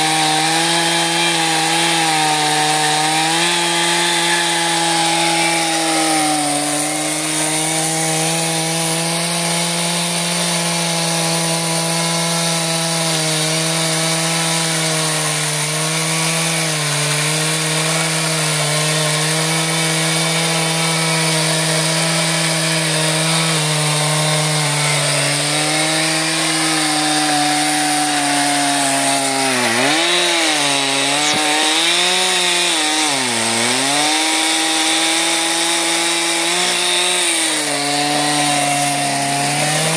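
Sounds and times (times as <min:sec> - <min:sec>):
chainsaw cutting logs: 0:00.0 - 0:39.9.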